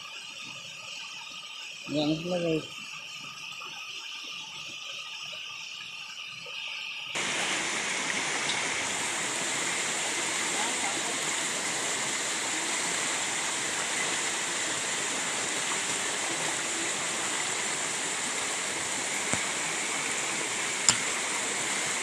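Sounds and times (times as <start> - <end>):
stream rushing over rocks: 7.2 - 22.0.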